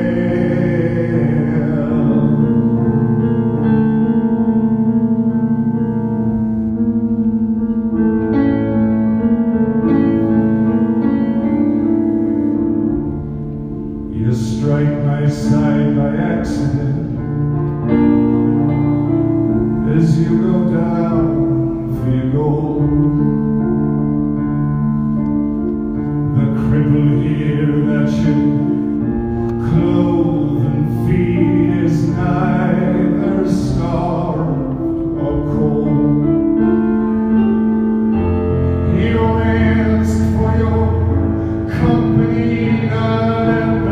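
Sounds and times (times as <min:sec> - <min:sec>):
man singing: 0:00.0 - 0:04.5, 0:14.0 - 0:17.4, 0:19.6 - 0:23.9, 0:26.2 - 0:37.1, 0:38.2 - 0:43.9
solo piano chords: 0:00.0 - 0:43.9.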